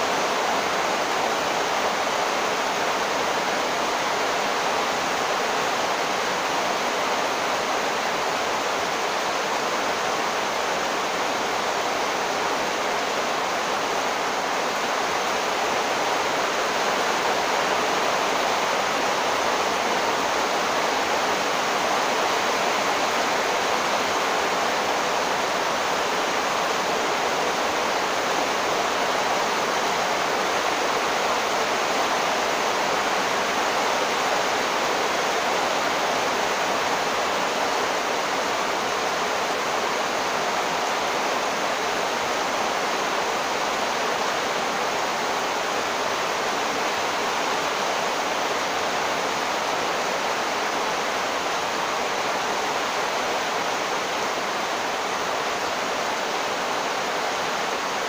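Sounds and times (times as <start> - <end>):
torrential rain pouring: 0.0 - 58.0.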